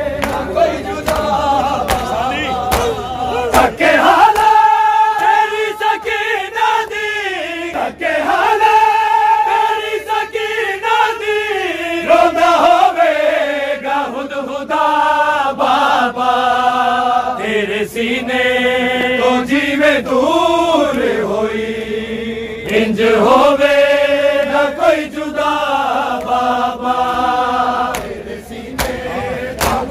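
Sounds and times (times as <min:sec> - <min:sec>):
men chanting: 0:00.0 - 0:29.9
hands slapping bare chests: 0:00.2 - 0:04.6, 0:27.8 - 0:29.0, 0:29.6 - 0:29.9.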